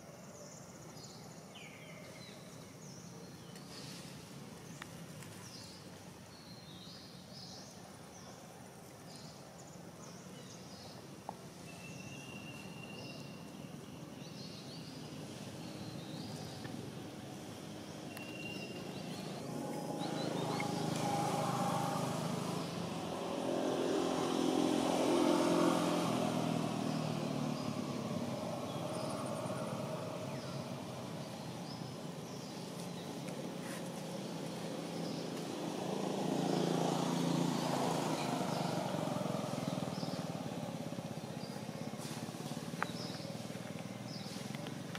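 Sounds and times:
steady traffic hum: 0:00.0 - 0:44.9
motorbikes passing by: 0:09.1 - 0:44.9.

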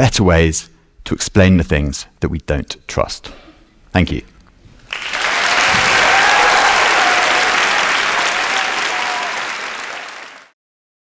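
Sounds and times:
audience applauding: 0:04.9 - 0:10.6.

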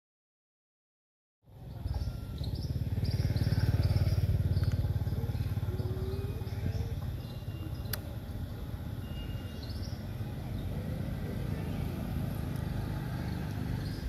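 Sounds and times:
low outdoor rumble: 0:01.5 - 0:14.0
faint high chirps: 0:01.7 - 0:10.8.

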